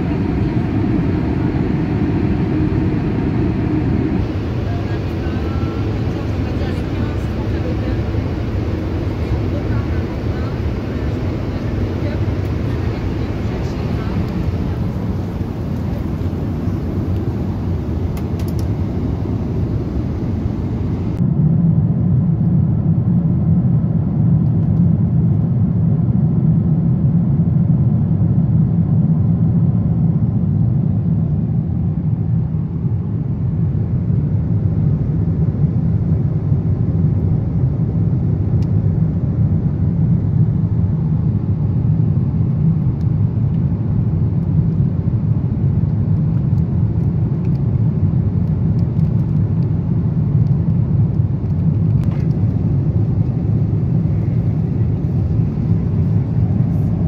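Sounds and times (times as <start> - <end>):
airplane cabin roar: 0.0 - 57.0.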